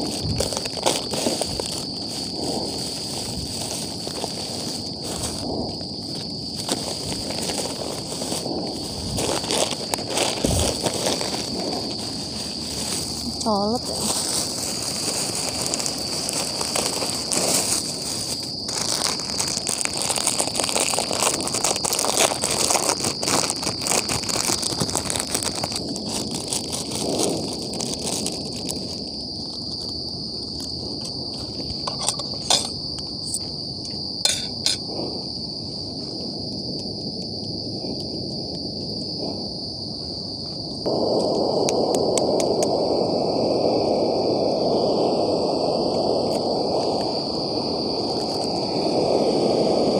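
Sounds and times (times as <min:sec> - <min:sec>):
plastic packets crinkling: 0:00.0 - 0:05.4, 0:06.5 - 0:29.8
insects chirring: 0:00.0 - 0:49.9.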